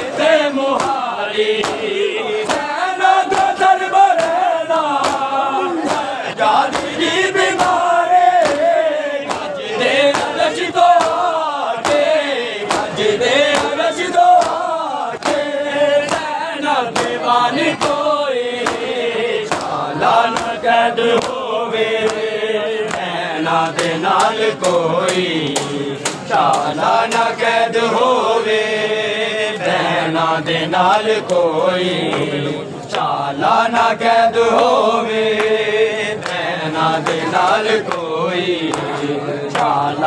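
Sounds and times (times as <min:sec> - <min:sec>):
men singing a chanting melody: 0:00.0 - 0:40.0
hands slapping chests: 0:00.7 - 0:20.6, 0:22.0 - 0:27.3.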